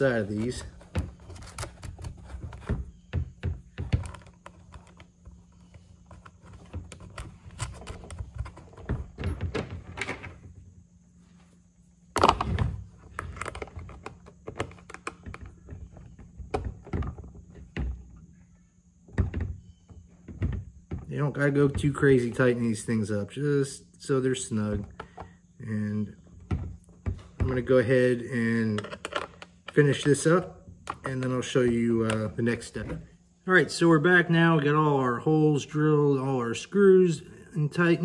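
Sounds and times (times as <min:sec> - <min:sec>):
clicks taps and knocks: 0:00.4 - 0:05.1.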